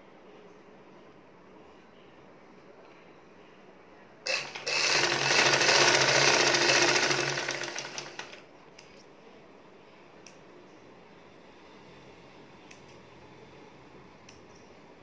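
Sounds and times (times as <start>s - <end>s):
sewing machine stitching: 4.3s - 8.4s.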